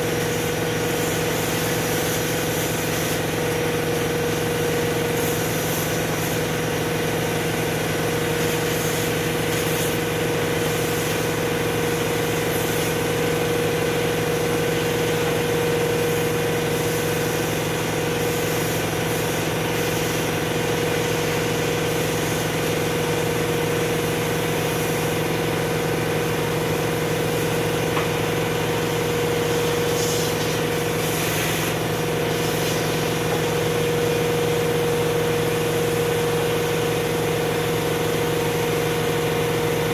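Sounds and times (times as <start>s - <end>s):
vacuum cleaner running: 0.0s - 39.9s.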